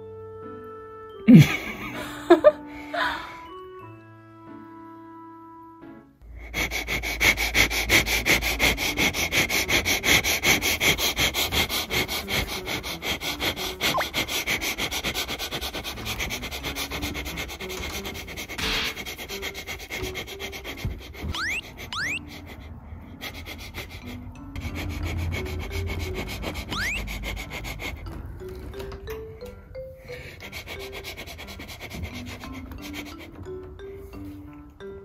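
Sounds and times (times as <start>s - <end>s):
person sniffing rapidly: 6.3s - 28.0s, 30.0s - 33.3s.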